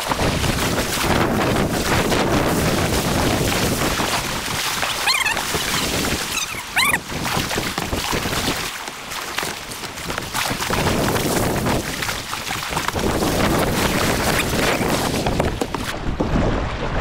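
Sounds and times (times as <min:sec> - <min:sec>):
paddle strokes in water: 0:00.0 - 0:17.0
squeaky wavering sounds: 0:05.0 - 0:07.0.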